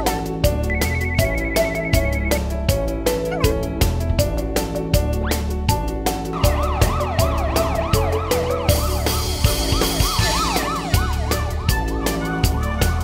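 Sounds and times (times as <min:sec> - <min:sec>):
background music with beat: 0:00.0 - 0:13.0
cartoon police siren wailing: 0:06.4 - 0:13.0.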